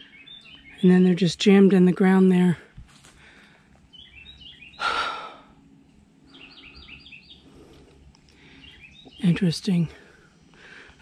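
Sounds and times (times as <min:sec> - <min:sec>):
songbird calling: 0:00.0 - 0:01.3, 0:03.3 - 0:05.6, 0:06.2 - 0:10.9.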